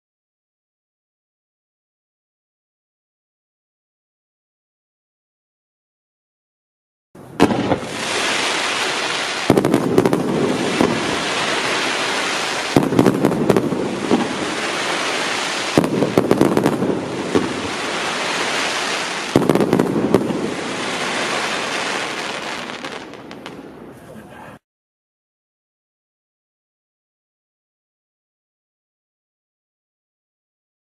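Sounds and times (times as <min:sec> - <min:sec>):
hiss of burning fireworks: 0:07.3 - 0:24.6
firework launch pops: 0:07.4 - 0:23.6.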